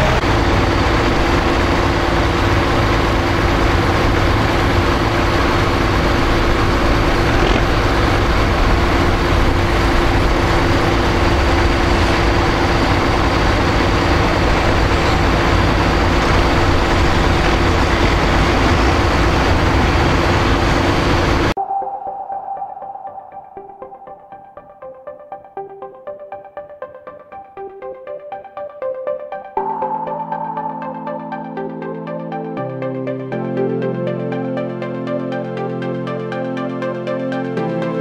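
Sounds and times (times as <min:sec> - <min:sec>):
tractor engines running: 0:00.0 - 0:21.6
steady held tone: 0:00.0 - 0:37.0.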